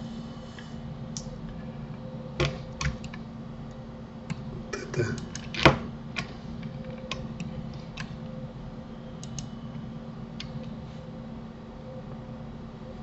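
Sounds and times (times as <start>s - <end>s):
low electrical hum: 0.0s - 13.0s
keyboard and mouse clicks: 9.2s - 9.5s.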